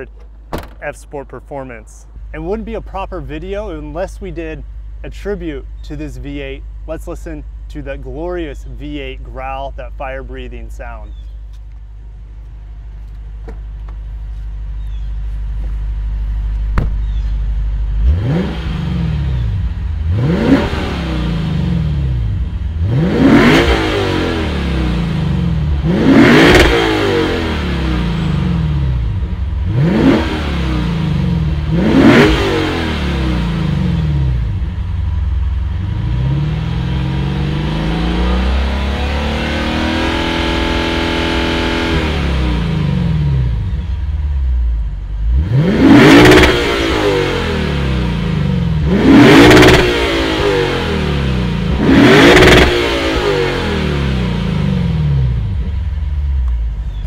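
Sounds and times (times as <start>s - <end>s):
car engine revving: 16.5s - 57.0s.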